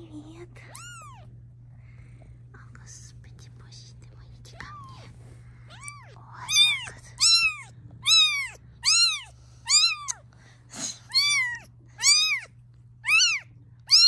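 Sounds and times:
kitten mewing loudly: 0:05.7 - 0:10.2, 0:10.8 - 0:14.0.

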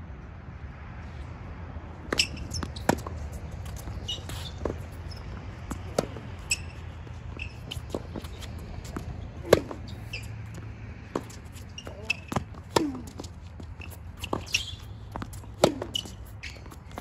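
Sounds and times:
tennis ball hit with rackets: 0:02.1 - 0:06.8, 0:07.4 - 0:10.3, 0:11.0 - 0:13.3, 0:14.2 - 0:16.2
shoe squeaks on court: 0:02.1 - 0:17.0.

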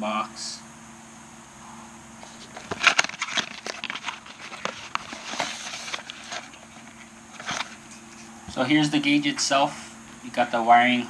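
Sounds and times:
cardboard box being opened: 0:02.2 - 0:08.3.

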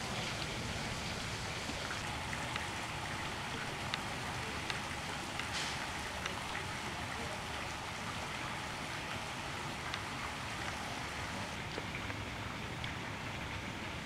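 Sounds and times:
hissing outdoor background noise: 0:00.0 - 0:14.0.

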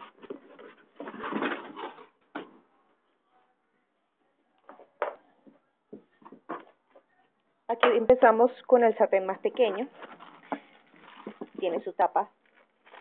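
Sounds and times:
rustling of packaging: 0:09.5 - 0:13.0.

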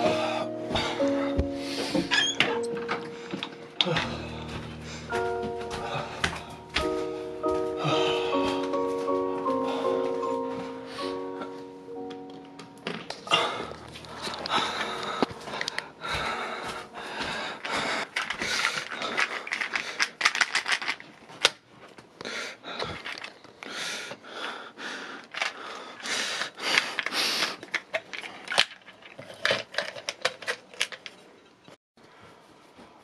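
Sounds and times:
pill bottle rattling: 0:17.6 - 0:21.2, 0:22.9 - 0:23.5.

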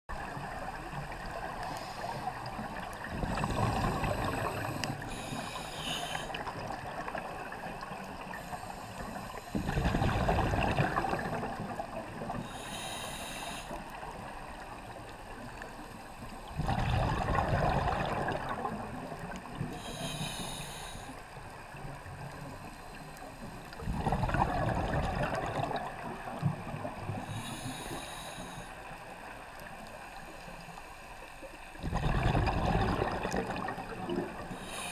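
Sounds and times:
high hiss of inhalation: 0:04.0 - 0:06.4, 0:12.5 - 0:13.8, 0:19.8 - 0:21.2, 0:27.2 - 0:28.8, 0:34.6 - 0:34.9
bubbles bursting from exhalation: 0:09.7 - 0:11.6, 0:16.6 - 0:18.7, 0:23.8 - 0:25.9, 0:31.8 - 0:34.4.

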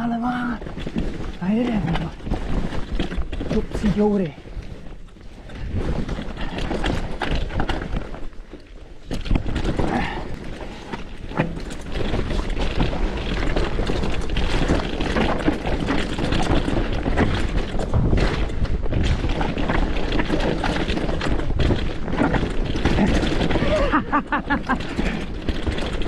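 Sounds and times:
mountain bike rattling over rocks: 0:00.0 - 0:26.0.

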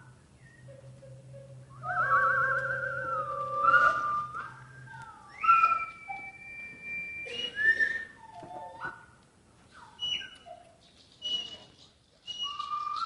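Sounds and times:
whistled notes and pitch glides: 0:00.4 - 0:09.0.

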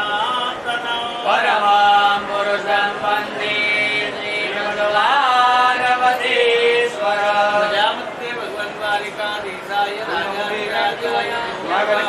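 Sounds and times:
person chanting mantras: 0:00.0 - 0:12.0.

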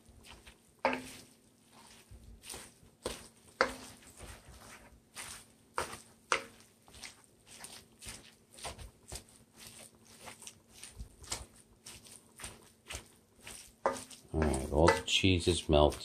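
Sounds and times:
metal spatula knocking on pan: 0:00.8 - 0:01.2, 0:03.6 - 0:03.9, 0:13.8 - 0:15.2.

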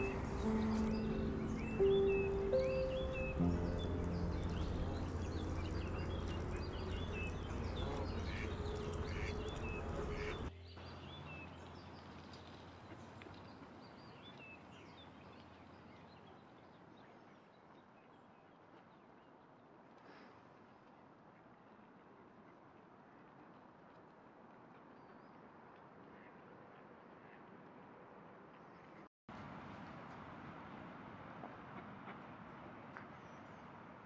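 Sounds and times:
mallard ducks calling: 0:00.0 - 0:10.5
low rumble: 0:00.0 - 0:12.2.

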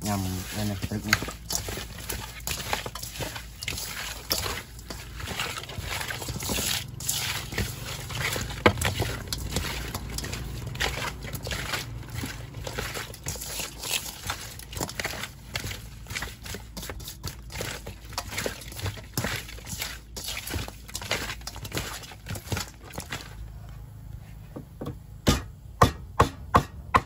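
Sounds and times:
wet ingredients sloshing in a bowl: 0:00.0 - 0:24.1.

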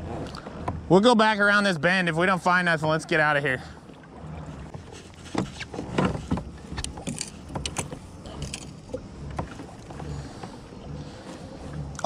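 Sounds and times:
low steady rumble: 0:00.0 - 0:12.0
gear clicking and knocking: 0:05.3 - 0:10.6.

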